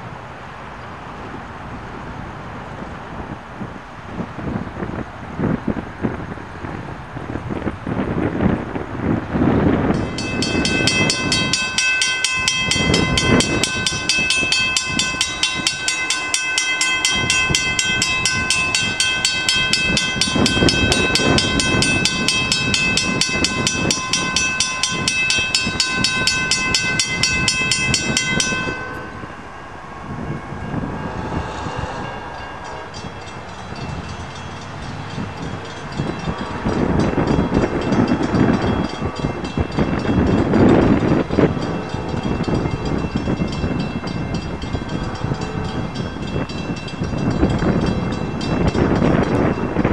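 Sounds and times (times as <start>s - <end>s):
wind rumble on microphone: 0.0s - 49.9s
railroad crossing bell ringing: 7.6s - 49.9s.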